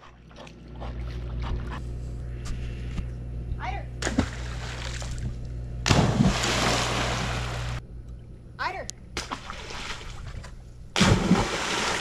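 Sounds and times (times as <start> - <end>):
steady low hum: 0.0 - 12.0
pool water sloshing and splashing: 5.9 - 7.8, 9.2 - 12.0.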